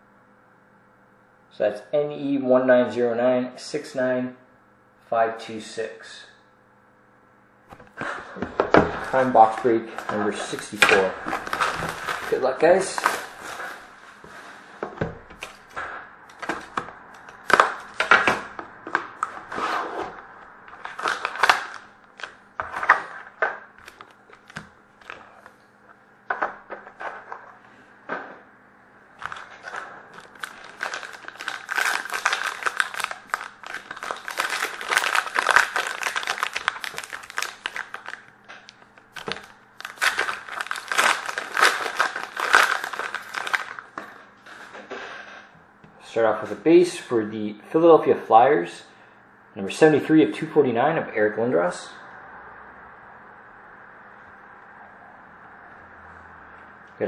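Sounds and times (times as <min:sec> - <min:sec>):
plastic wrapping crinkling and tearing: 0:08.8 - 0:14.0, 0:15.4 - 0:19.5, 0:20.7 - 0:25.3, 0:29.2 - 0:44.1.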